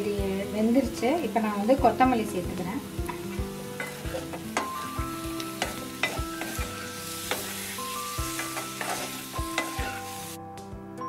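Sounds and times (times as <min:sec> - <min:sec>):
light sizzle: 0:00.0 - 0:10.7
wooden spatula scraping a pan: 0:03.8 - 0:04.9, 0:05.6 - 0:10.1.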